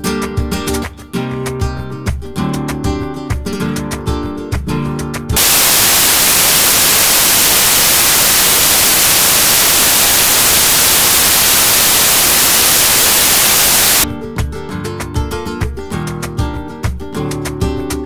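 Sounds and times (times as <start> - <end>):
acoustic guitar music: 0.0 - 5.3, 14.1 - 18.0
static hiss: 5.4 - 14.0.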